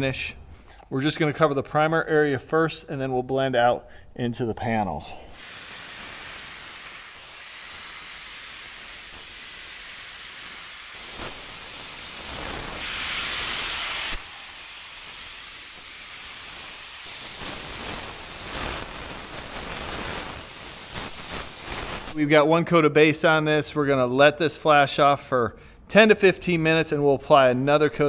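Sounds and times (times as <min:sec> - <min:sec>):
louder higher hiss: 0:03.0 - 0:22.4
spray gun air hissing: 0:05.2 - 0:22.2.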